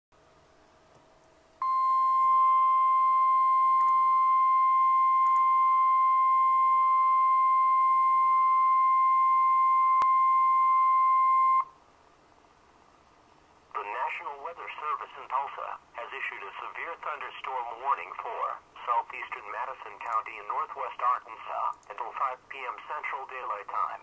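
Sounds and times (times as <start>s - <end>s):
high warning alarm beep: 1.6s - 11.7s.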